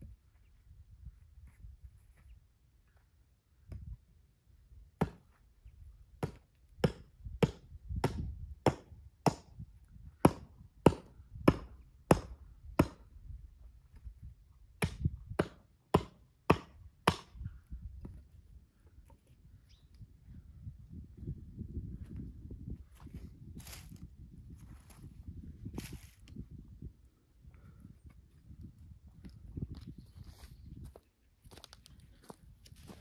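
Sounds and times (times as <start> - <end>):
hatchet chopping brushwood: 5.0 - 5.3, 6.2 - 9.6, 10.2 - 13.1, 14.8 - 17.4.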